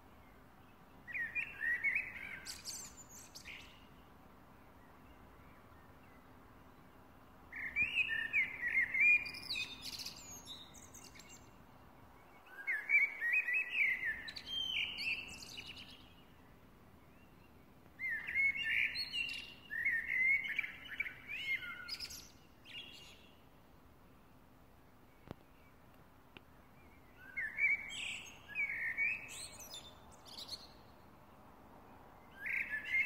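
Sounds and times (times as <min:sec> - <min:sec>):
blackbird singing: 0:01.1 - 0:03.9, 0:07.5 - 0:11.6, 0:12.2 - 0:16.4, 0:17.1 - 0:23.4, 0:26.7 - 0:31.0, 0:32.2 - 0:33.0.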